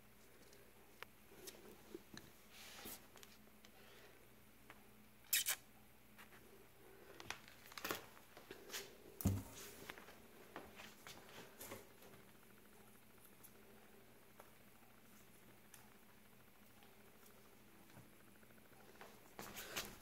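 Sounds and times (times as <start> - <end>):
dull thump: 9.2 - 9.6.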